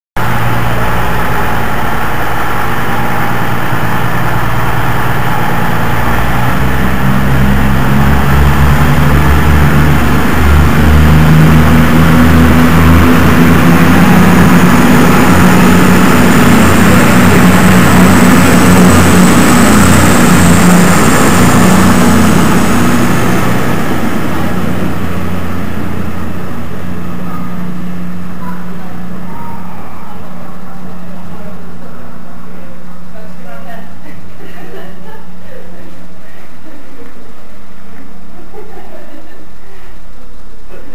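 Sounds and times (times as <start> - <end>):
diesel train engines under load: 0.2 - 40.9
thin high whine: 0.2 - 40.9.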